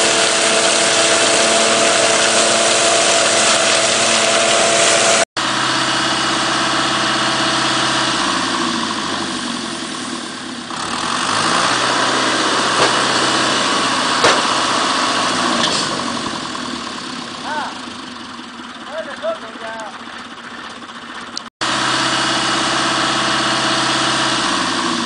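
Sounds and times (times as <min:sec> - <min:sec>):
harvester rushing noise: 0:00.0 - 0:18.6
tractor engine running: 0:00.0 - 0:25.0.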